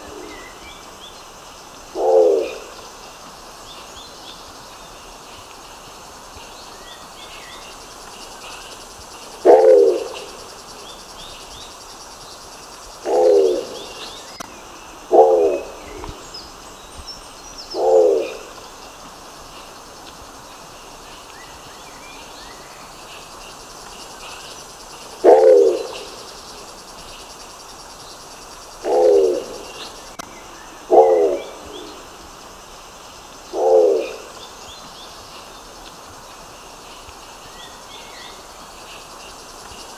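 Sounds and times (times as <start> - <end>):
steady background hiss: 0.0 - 39.9
pigeon calling: 9.4 - 10.3, 13.0 - 14.0, 28.8 - 29.6.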